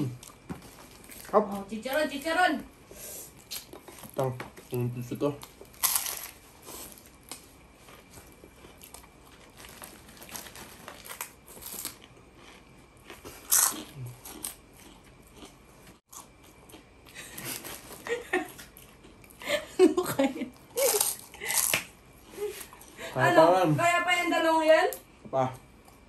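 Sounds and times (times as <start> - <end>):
chewing crispy food: 0.0 - 1.7, 3.4 - 19.6.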